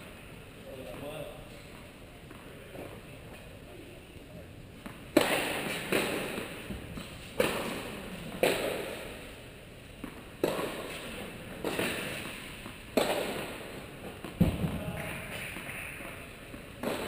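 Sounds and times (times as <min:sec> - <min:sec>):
tennis ball racket strikes: 0:04.8 - 0:09.2, 0:10.0 - 0:17.0
tennis ball bouncing: 0:04.8 - 0:09.4, 0:10.0 - 0:17.0.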